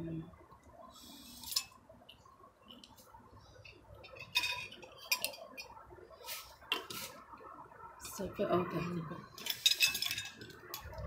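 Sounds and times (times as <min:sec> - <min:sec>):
cutlery clinking on plates: 0:04.1 - 0:05.7, 0:09.4 - 0:10.6.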